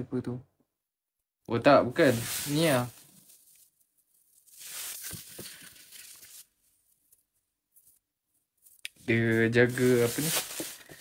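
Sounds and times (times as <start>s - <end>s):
gift wrap rustling and tearing: 2.0s - 6.6s, 9.1s - 11.0s
paper crackles: 2.1s - 6.6s, 9.6s - 11.0s.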